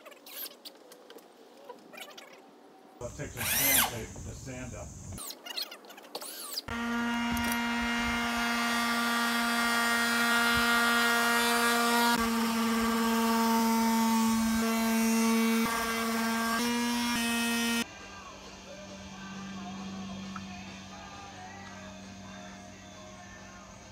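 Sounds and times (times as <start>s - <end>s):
cordless drill motor whining: 3.1s - 4.2s, 6.2s - 17.9s.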